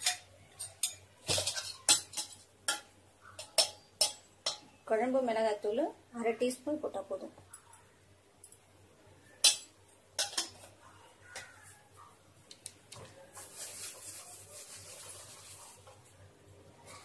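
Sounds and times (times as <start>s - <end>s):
spoon rubbing in pan: 13.3s - 16.1s.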